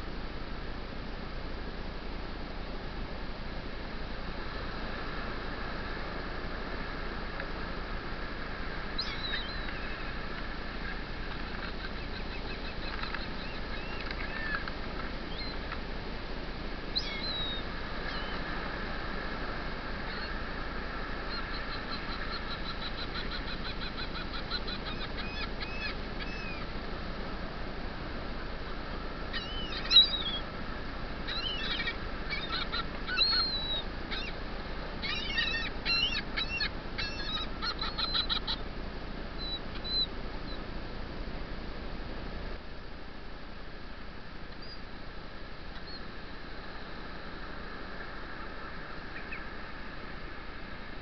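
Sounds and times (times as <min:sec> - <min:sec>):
steady hiss: 0:00.0 - 0:35.1, 0:38.6 - 0:51.0
surf breaking on a beach: 0:00.1 - 0:35.0, 0:35.6 - 0:51.0
gulls calling: 0:08.7 - 0:15.8, 0:16.8 - 0:26.8, 0:29.0 - 0:38.7, 0:39.3 - 0:40.7, 0:45.7 - 0:51.0
shorebirds chirping: 0:08.9 - 0:15.7, 0:16.9 - 0:18.6, 0:20.0 - 0:20.5, 0:21.1 - 0:26.8, 0:29.2 - 0:38.7, 0:39.4 - 0:40.6, 0:46.7 - 0:50.9.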